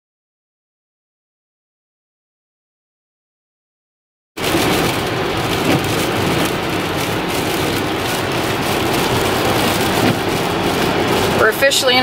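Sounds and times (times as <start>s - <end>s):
car engine drone: 4.4s - 12.0s
tyre hiss on wet road: 4.4s - 12.0s.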